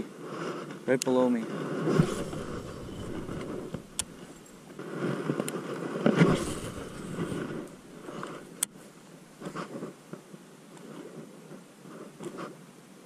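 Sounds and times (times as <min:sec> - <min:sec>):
sleeve rustling against camera: 0:01.7 - 0:08.6
sharp clicks: 0:02.2 - 0:04.3.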